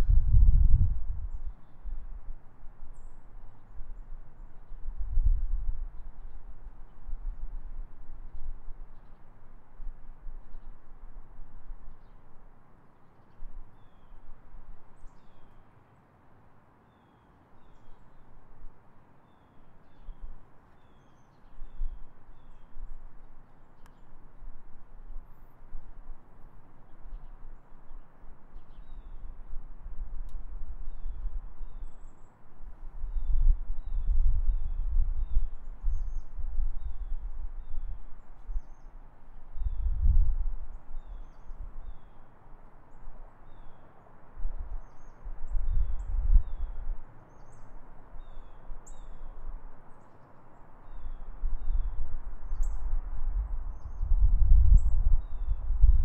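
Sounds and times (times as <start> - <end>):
wind gusts on microphone: 0.0 - 3.0, 3.7 - 8.8, 28.6 - 42.2, 44.3 - 49.7, 50.8 - 56.0
small birds chirping: 23.5 - 24.1
faint high bird chirps: 33.1 - 38.9, 40.9 - 42.3, 44.8 - 56.0.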